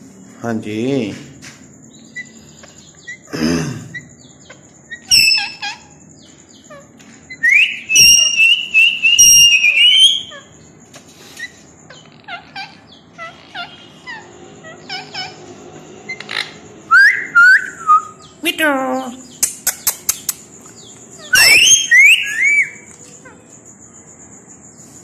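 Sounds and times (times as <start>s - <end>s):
parakeet screech: 5.0s - 5.9s, 11.4s - 15.5s, 21.2s - 22.8s.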